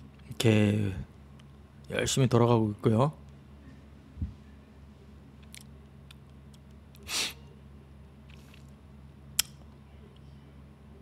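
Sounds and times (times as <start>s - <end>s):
low steady hum: 0.0s - 11.0s
person sniffing: 7.0s - 7.4s
sharp click: 9.4s - 9.6s.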